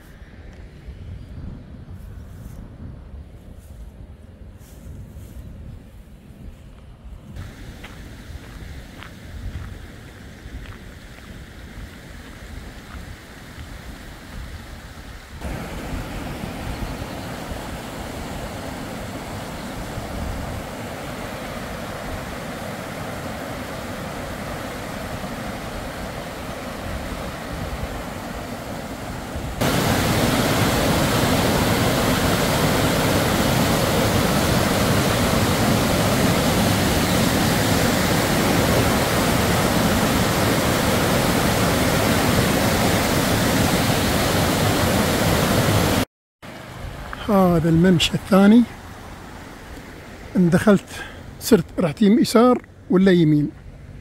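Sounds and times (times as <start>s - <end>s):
river rushing over stones: 15.4s - 51.6s
white-water cascade roar: 15.4s - 52.2s.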